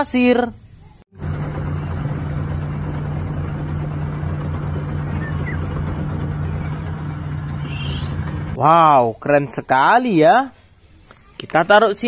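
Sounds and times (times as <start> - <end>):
diesel truck engine humming: 1.1 - 8.7.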